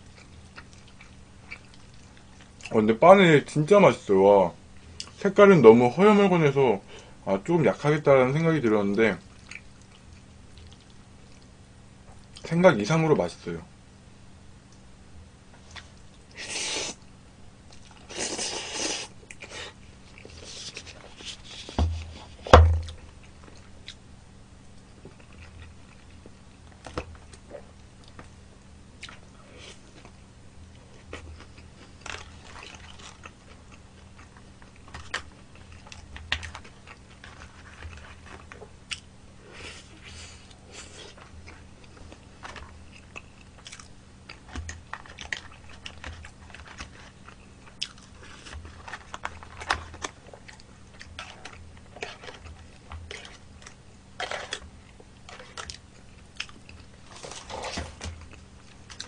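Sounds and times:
chewing and biting: 0.0s - 2.7s, 9.3s - 11.5s, 30.8s - 39.1s, 39.9s - 59.0s
thumps: 21.7s - 23.0s.

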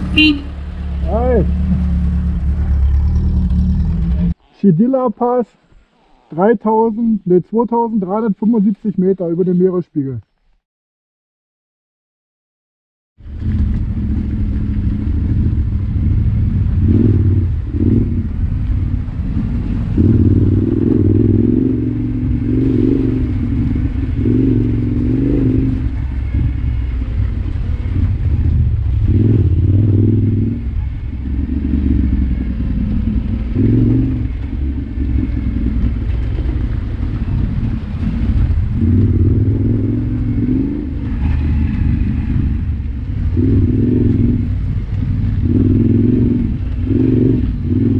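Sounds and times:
motorcycle engine running: 0.0s - 4.4s, 13.2s - 47.9s.

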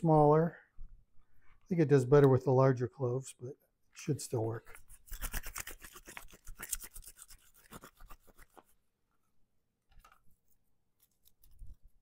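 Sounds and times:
garlic skin rubbing in peeler tube: 4.6s - 8.8s.

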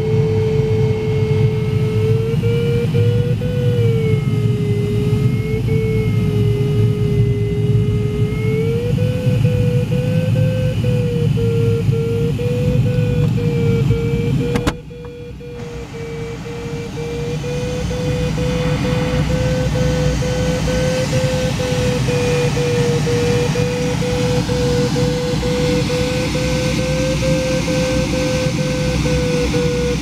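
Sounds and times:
variometer steady tone: 0.0s - 30.0s
airflow rushing: 15.4s - 25.6s.

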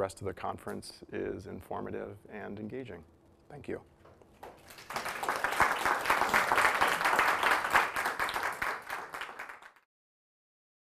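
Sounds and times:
audience applauding: 4.4s - 9.9s.

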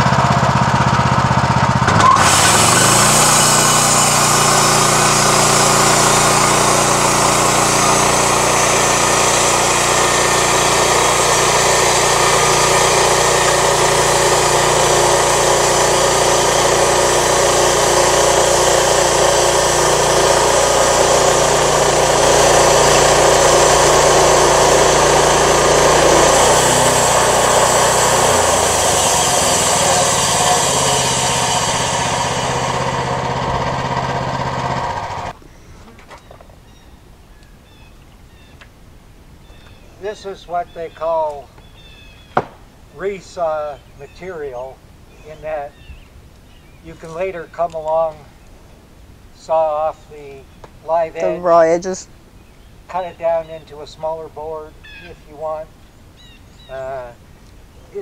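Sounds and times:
gas engine revving: 0.0s - 35.4s
bandsaw blade sawing log: 0.2s - 35.4s.

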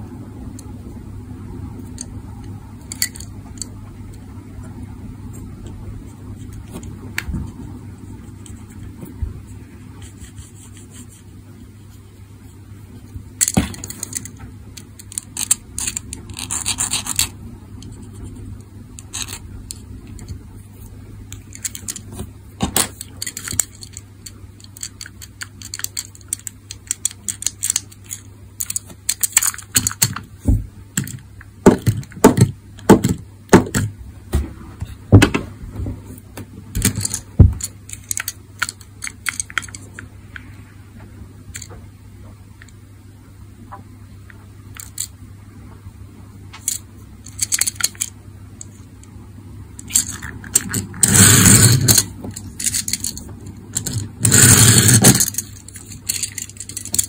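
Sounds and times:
faint low hum: 0.0s - 57.0s
fingers handling toy car: 10.0s - 11.4s, 13.4s - 18.4s, 19.0s - 20.3s, 22.8s - 30.3s, 36.8s - 40.1s, 44.7s - 45.2s, 46.6s - 48.9s, 49.8s - 57.0s.

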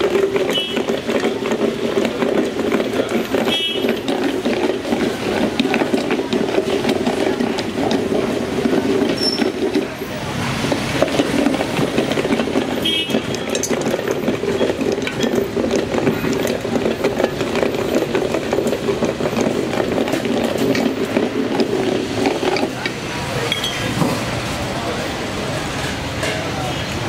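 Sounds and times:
street noise hum: 0.0s - 27.0s
wooden stick churning liquid: 0.0s - 27.0s.

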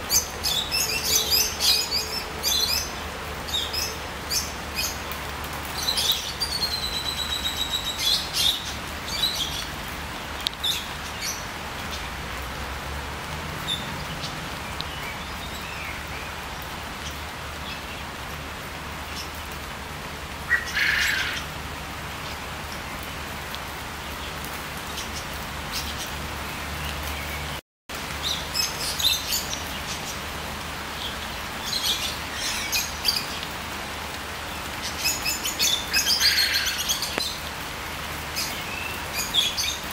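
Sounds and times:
songbirds singing: 0.0s - 12.2s, 24.0s - 39.9s
rain pattering on trees: 0.0s - 39.9s.

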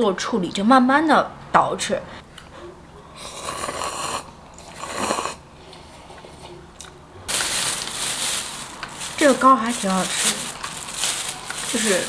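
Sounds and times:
person slurping noodles: 3.2s - 5.4s.

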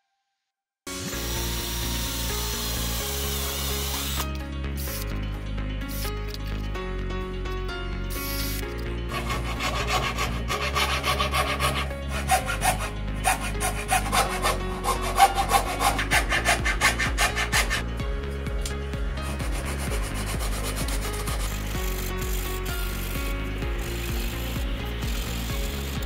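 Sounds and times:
sandpaper rubbing wood: 8.2s - 17.9s, 19.2s - 26.0s
fret saw cutting plywood: 8.5s - 17.9s, 19.2s - 26.0s.

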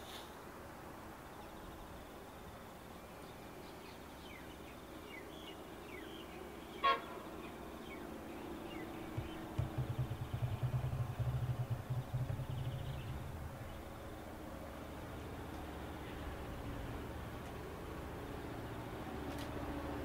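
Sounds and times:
faint bird chirps: 1.3s - 14.3s
locomotive horn toot: 6.8s - 7.3s
low pulsing rumble: 9.0s - 15.2s.

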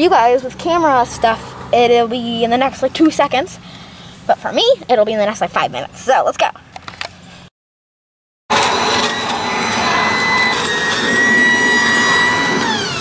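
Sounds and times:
leaf blower running: 8.5s - 13.0s.

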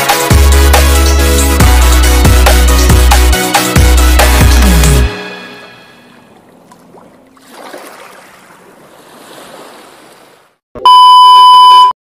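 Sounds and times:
electronic beep: 10.8s - 11.9s.

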